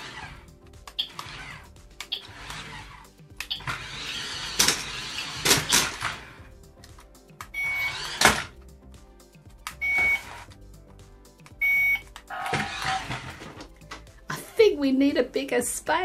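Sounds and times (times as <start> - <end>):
toy electric motors whirring: 0.0 - 0.4, 1.0 - 6.4, 7.6 - 8.5, 12.3 - 13.6
short high electronic beeps: 7.6 - 8.1, 9.8 - 10.4, 11.6 - 12.0.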